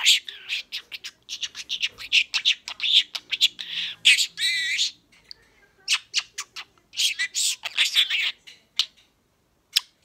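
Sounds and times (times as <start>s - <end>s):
budgerigar chirping: 0.0s - 5.0s, 5.9s - 9.0s
wavering squawk: 0.0s - 5.0s, 5.9s - 8.9s.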